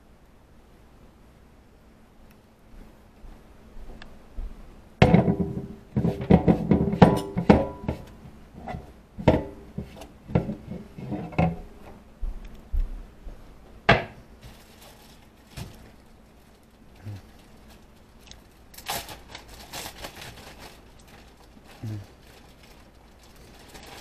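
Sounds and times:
dishes and pans clanking: 5.0s - 11.7s.

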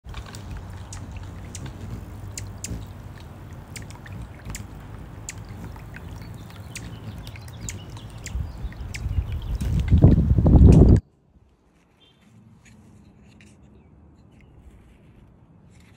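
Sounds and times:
fountain water bubbling and trickling: 0.1s - 10.6s
sharp high ticks: 0.1s - 11.0s.

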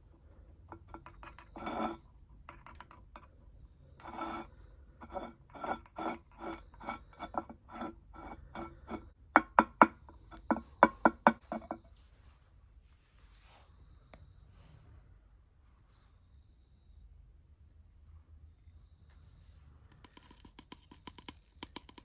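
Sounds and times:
metal tweezers scraping soil: 0.7s - 3.2s, 4.0s - 9.1s
ringing clinks on ceramic pot: 0.7s - 3.3s, 4.0s - 11.8s.

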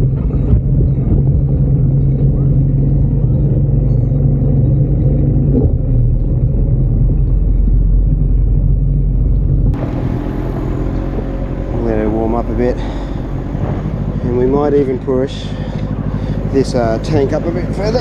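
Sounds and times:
outboard motor running: 9.7s - 18.0s.

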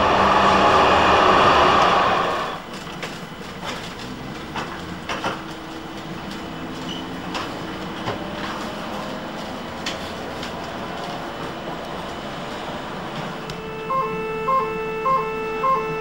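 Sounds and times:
rushing street noise: 0.0s - 16.0s
trolley wheels clicking and knocking: 2.6s - 13.4s
faint steady hum: 13.4s - 16.0s.

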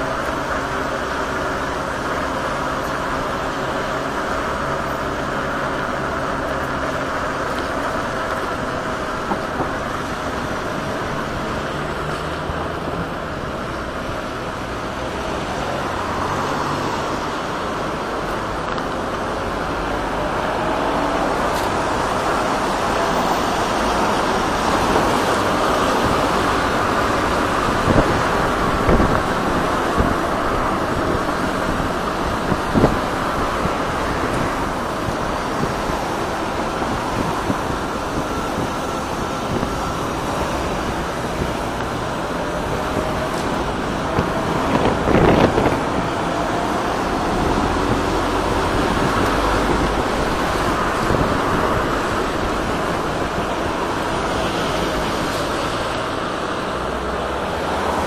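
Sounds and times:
street traffic: 0.0s - 58.0s
wind on microphone: 15.5s - 58.0s.

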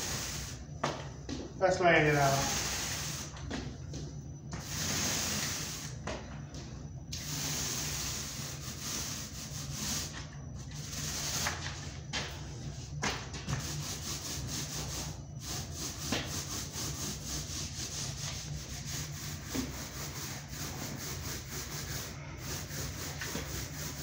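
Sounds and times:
paint roller swishing on wall: 0.0s - 24.0s.

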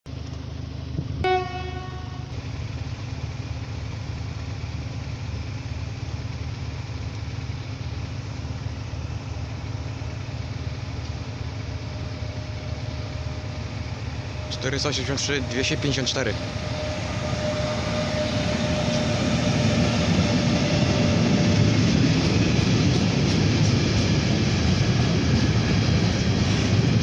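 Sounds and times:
train low rumble: 0.1s - 27.0s
locomotive horn blast: 1.2s - 2.4s, 14.3s - 21.6s.

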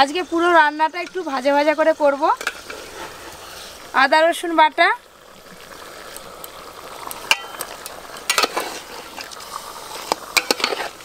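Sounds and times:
meat sizzling in a pot: 0.0s - 11.0s
metal spatula scraping a pot: 2.3s - 3.8s, 8.3s - 9.3s, 9.9s - 11.0s.

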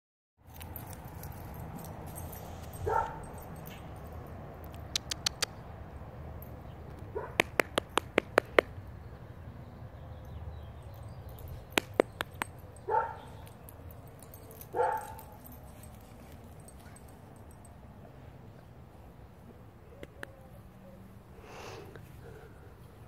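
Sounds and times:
dog barking: 2.8s - 3.3s, 7.2s - 7.5s, 12.9s - 13.4s, 14.7s - 15.3s
quick sharp clicks: 4.6s - 5.6s.

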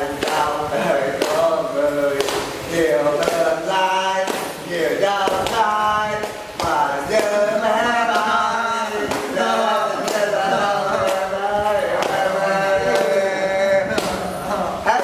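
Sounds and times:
man singing unaccompanied: 0.0s - 15.0s
sharp clap or tap: 0.2s - 0.5s, 1.2s - 1.4s, 2.2s - 2.6s, 3.2s - 3.5s, 4.2s - 4.6s, 5.2s - 7.4s, 9.0s - 9.4s, 12.0s - 12.2s, 13.9s - 14.2s.

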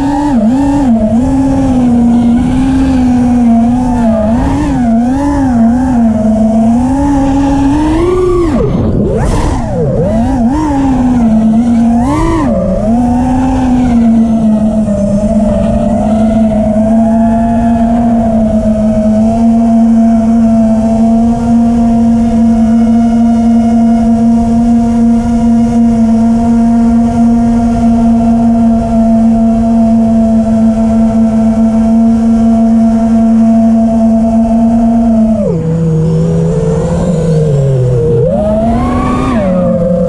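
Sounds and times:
drone motors whining: 0.0s - 40.0s
wind rush: 0.9s - 20.4s.

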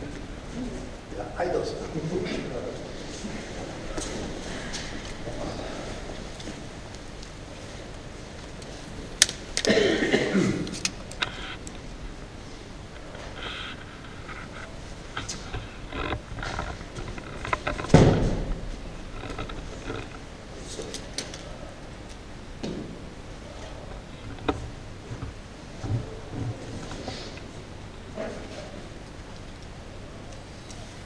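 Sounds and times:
body thumping onto mats: 17.9s - 18.7s.

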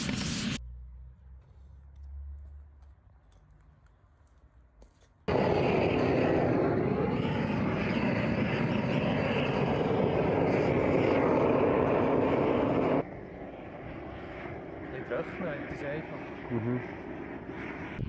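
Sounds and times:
gas torch flame rushing: 0.0s - 0.6s, 5.3s - 13.0s.

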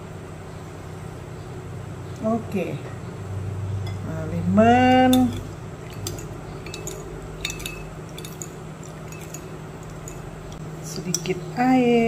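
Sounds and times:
steady low hum: 0.0s - 12.0s
metal spoon clinking glass bowl: 4.9s - 11.4s.

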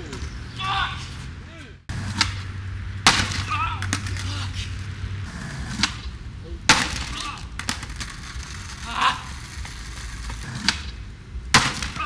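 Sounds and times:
person shouting: 0.6s - 1.8s, 3.4s - 4.6s, 7.1s - 7.5s, 8.8s - 9.4s
skateboard wheels rolling: 3.4s - 12.0s
skateboard clacking on concrete: 6.8s - 11.0s.

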